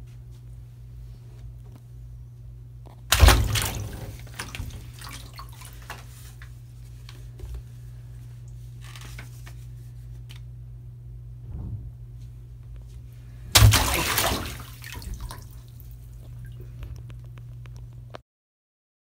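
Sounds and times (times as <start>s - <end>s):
water dripping and lapping: 3.1s - 6.5s, 13.5s - 17.4s
bathtub water splashing: 3.1s - 6.6s, 13.5s - 17.1s.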